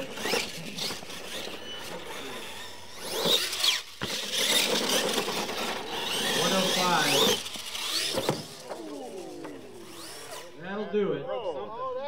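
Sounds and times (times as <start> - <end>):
tyres scrabbling over dirt: 0.0 - 8.9
toy truck motor whining: 0.0 - 10.6.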